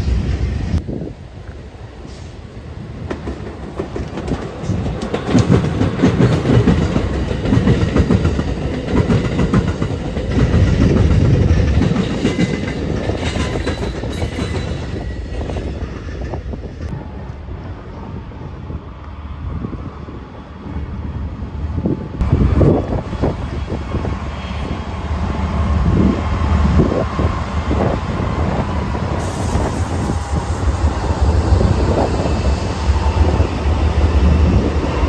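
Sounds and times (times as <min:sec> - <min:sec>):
train rumbling past: 0:00.0 - 0:35.0
wheels clacking over rail joints: 0:03.0 - 0:16.5.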